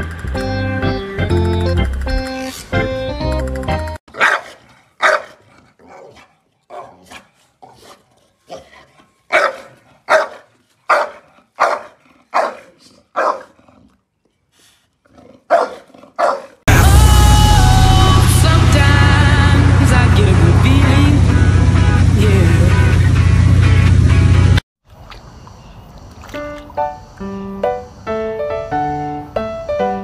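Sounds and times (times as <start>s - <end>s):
dog barking: 4.1s - 8.7s, 9.3s - 13.6s, 15.5s - 16.6s.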